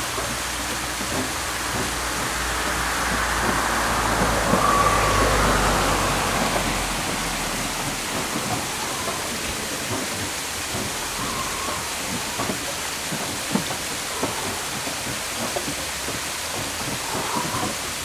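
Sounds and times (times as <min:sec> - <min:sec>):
water splashing at waterwheel: 0:00.0 - 0:18.0.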